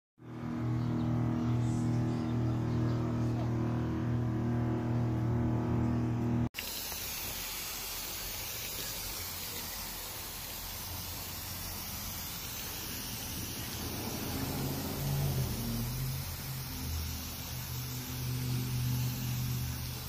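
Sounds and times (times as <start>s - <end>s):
pressure sprayer hissing: 6.6s - 20.0s.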